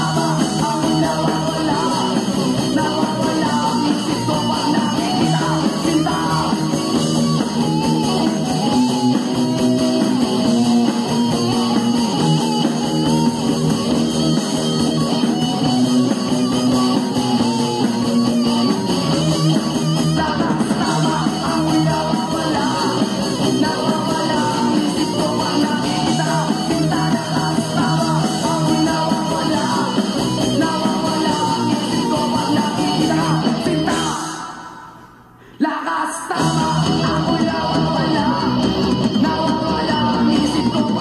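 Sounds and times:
rock song singing: 0:00.0 - 0:41.0
guitar playing: 0:06.6 - 0:20.2.

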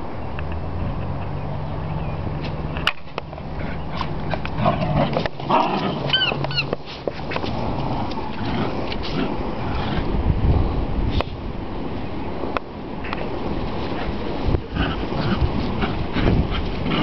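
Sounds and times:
puppies yipping: 0:03.6 - 0:07.0.

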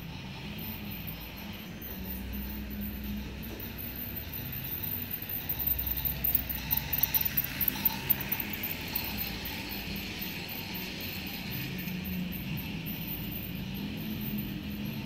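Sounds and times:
toy train wheels clicking on track: 0:03.1 - 0:11.0.

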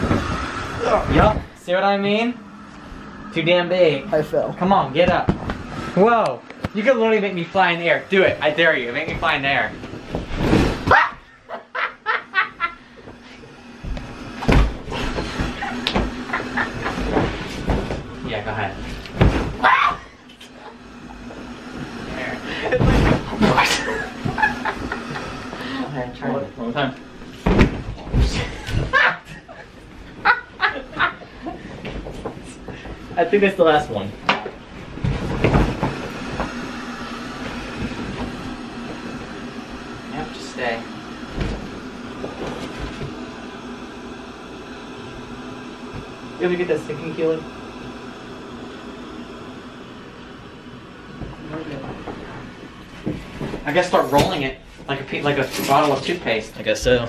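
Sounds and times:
thump on air mattress: 0:00.0 - 0:00.5, 0:09.1 - 0:11.0, 0:13.8 - 0:18.2, 0:18.8 - 0:19.8, 0:22.6 - 0:25.1, 0:27.4 - 0:29.0, 0:34.3 - 0:39.3, 0:41.3 - 0:43.2
bodies thumping on air mattress: 0:00.0 - 0:03.0, 0:04.7 - 0:06.2, 0:08.2 - 0:11.3, 0:12.5 - 0:44.2, 0:51.1 - 0:55.0
person laughing: 0:11.5 - 0:12.9, 0:23.6 - 0:25.7, 0:28.4 - 0:31.6.

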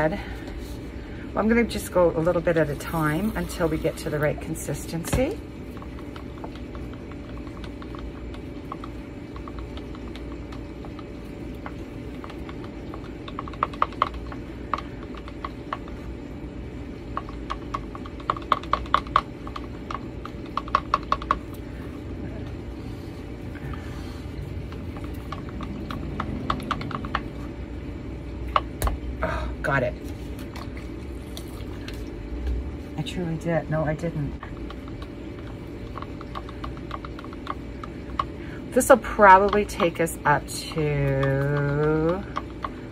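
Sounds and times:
low hum: 0:00.0 - 0:42.9
stick ticking against plastic cup: 0:05.7 - 0:16.0, 0:17.1 - 0:21.6, 0:24.5 - 0:27.5, 0:34.5 - 0:42.9.

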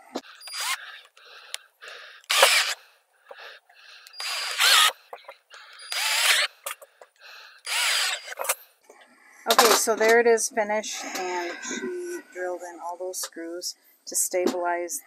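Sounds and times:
cordless drill whining: 0:00.2 - 0:01.6, 0:02.2 - 0:08.6.

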